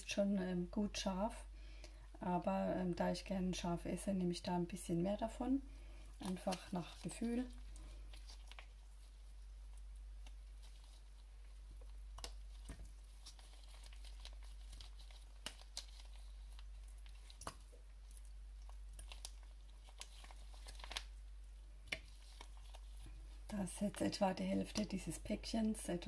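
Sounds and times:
sachet crinkling and clicking: 6.2 - 9.1, 9.7 - 21.2, 21.9 - 25.0.

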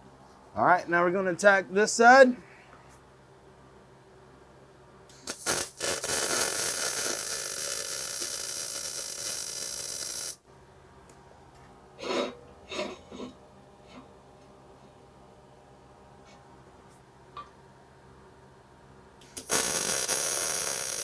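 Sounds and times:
welding arc hissing: 5.1 - 10.4, 19.2 - 21.0
welding arc spits: 5.1 - 10.4, 19.2 - 21.0.

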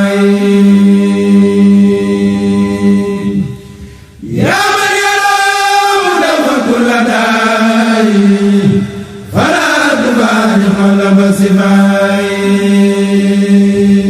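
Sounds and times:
lead voice singing ornamented line: 0.0 - 14.0
low held vocal drone: 0.0 - 14.0
male voices chanting: 4.2 - 14.0.

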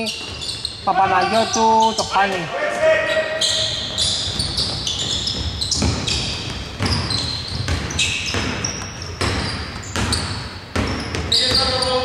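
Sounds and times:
sneakers squeaking on floor: 0.0 - 12.0
basketball dribbling on hardwood: 4.2 - 12.0.

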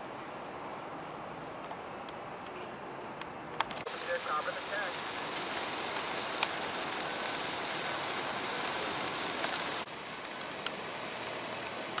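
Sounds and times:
road flare fizzing and crackling: 3.5 - 12.0.

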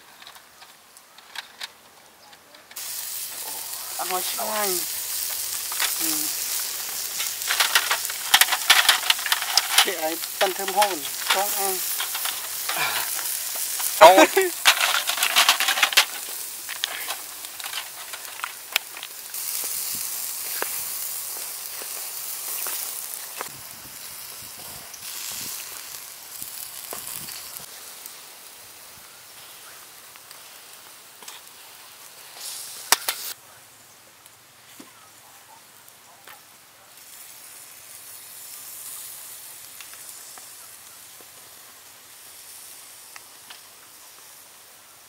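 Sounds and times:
snails sizzling on grill: 0.0 - 45.0
scattered pops: 2.7 - 23.5.

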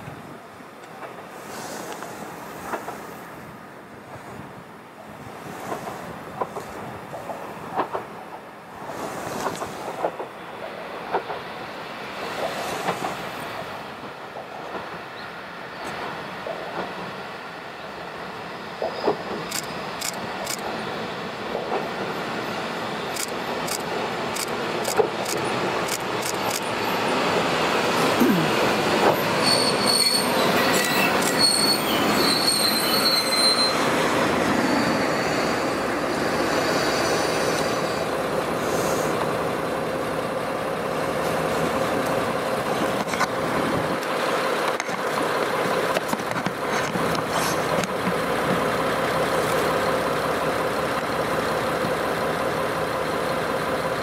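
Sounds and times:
diesel train engine rumble: 0.0 - 54.0
wheel and brake squeal: 29.2 - 35.5.

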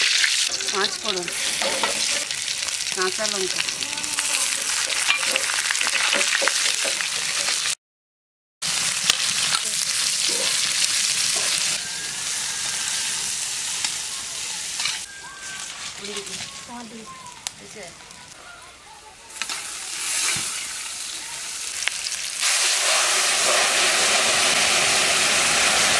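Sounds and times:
metal spatula scraping wok: 0.0 - 7.6, 9.2 - 16.7, 19.4 - 20.9
spices sizzling in hot oil: 0.0 - 7.8, 8.6 - 18.4, 19.2 - 25.9.

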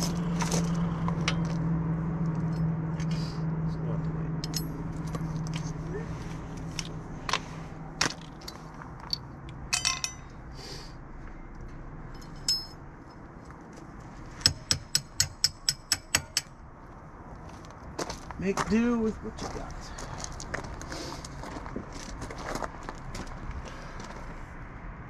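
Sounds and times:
tools clinking on metal: 4.4 - 5.7, 8.4 - 10.4, 11.4 - 12.8
small hammer tapping on metal: 14.4 - 16.5.

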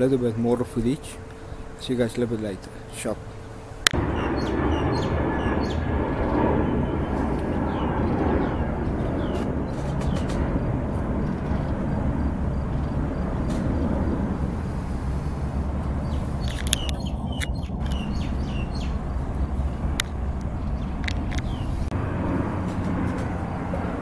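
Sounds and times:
small birds chirping: 0.0 - 6.4, 7.4 - 14.2, 15.2 - 21.9
distant jet airliner rumble: 0.0 - 24.0.

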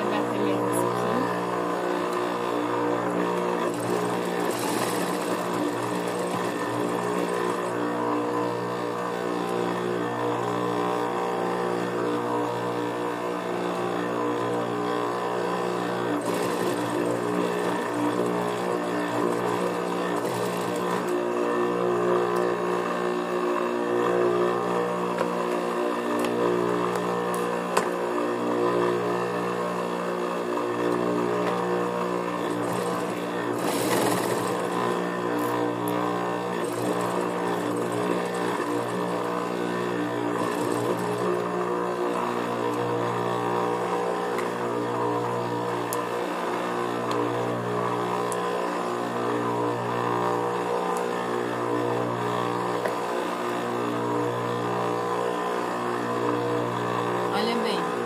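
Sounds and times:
sewing machine motor humming: 0.0 - 58.0
bursts of stitching: 3.5 - 7.8, 16.1 - 21.3, 32.4 - 35.6, 36.6 - 39.2, 40.2 - 41.4.

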